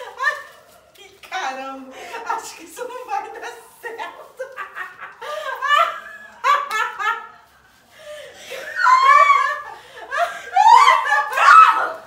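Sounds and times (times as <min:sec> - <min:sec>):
people laughing: 0:04.3 - 0:11.9.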